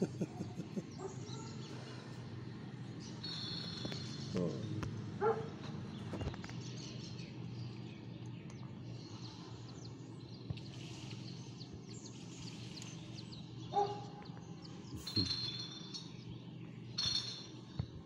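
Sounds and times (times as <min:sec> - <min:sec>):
faint bird chirps: 0:00.0 - 0:04.8, 0:05.9 - 0:17.9
steady low hum: 0:00.0 - 0:18.0.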